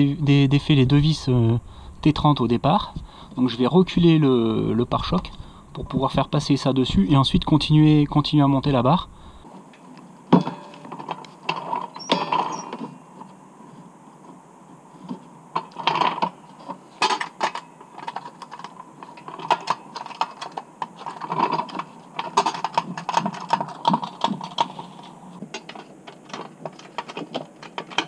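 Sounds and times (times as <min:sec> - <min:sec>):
metal and plastic clicks and rattles: 0:15.6 - 0:28.0.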